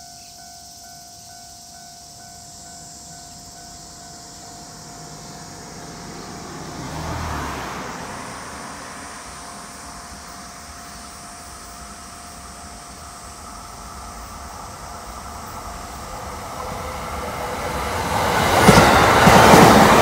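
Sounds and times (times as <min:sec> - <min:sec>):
vehicle passing close by: 0:04.6 - 0:12.5.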